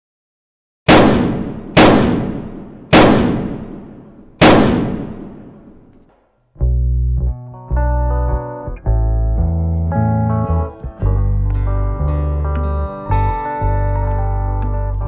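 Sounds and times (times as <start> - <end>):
echoing gunshots: 0.9 - 6.0
guitar music: 6.6 - 15.0.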